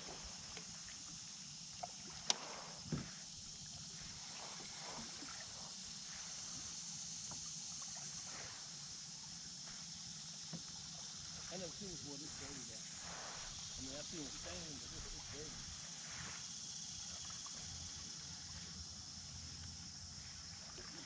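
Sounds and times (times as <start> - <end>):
steady high hiss: 0.0 - 21.0
dull knock on kayak: 2.8 - 3.2.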